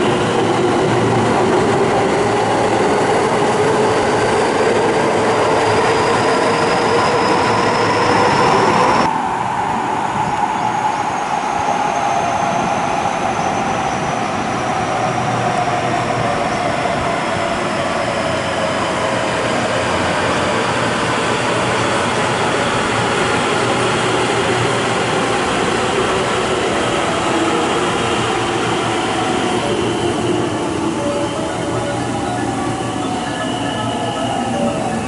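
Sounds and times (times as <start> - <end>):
train wheels rumbling on rail: 0.0 - 35.0
train whine falling in pitch: 22.9 - 35.0.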